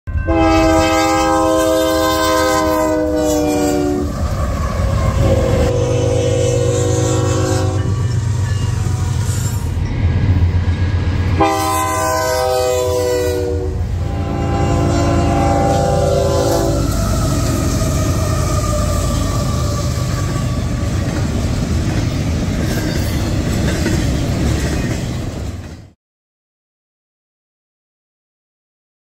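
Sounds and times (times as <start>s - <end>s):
locomotive air horn blasts: 0.1s - 4.2s, 4.9s - 9.5s, 11.4s - 20.8s
locomotive rumble: 0.2s - 25.9s.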